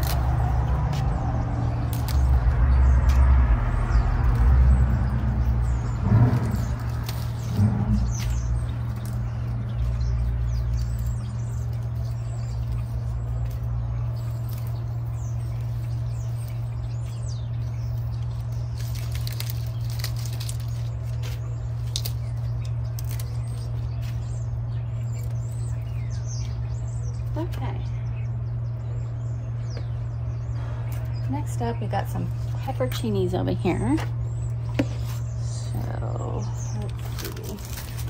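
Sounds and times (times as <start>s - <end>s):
plants rustling and snapping: 0.0s - 26.6s, 36.6s - 38.0s
small birds chirping: 0.0s - 38.0s
steady low hum: 0.0s - 38.0s.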